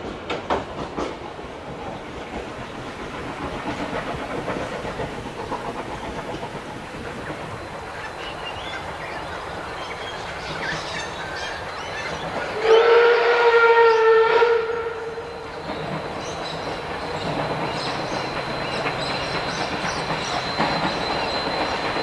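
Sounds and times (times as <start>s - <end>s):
running train noise: 0.0s - 22.0s
steam whistle blast: 12.6s - 15.4s.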